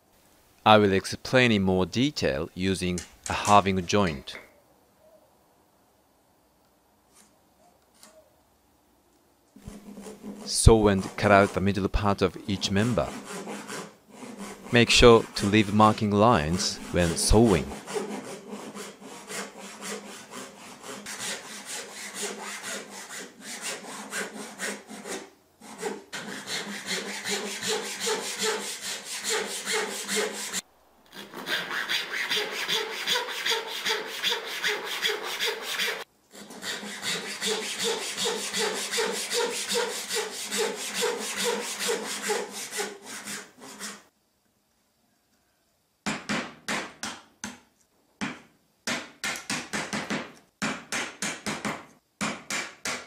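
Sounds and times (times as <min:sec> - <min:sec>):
hand saw cutting wood: 0:09.6 - 0:11.8, 0:12.4 - 0:44.0.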